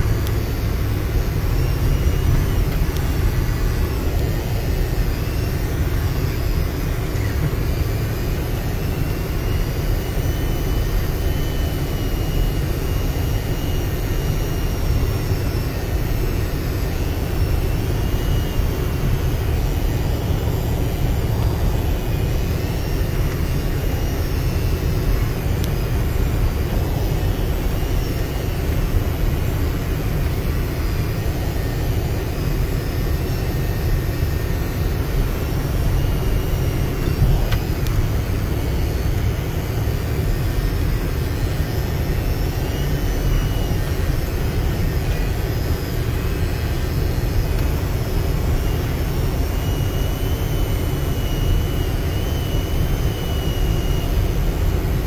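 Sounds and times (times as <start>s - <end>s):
vehicle engine running under load: 0.0s - 11.7s.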